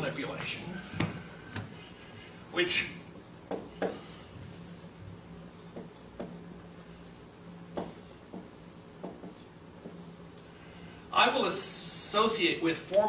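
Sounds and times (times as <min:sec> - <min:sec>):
marker squeaking on whiteboard: 0:02.8 - 0:10.5.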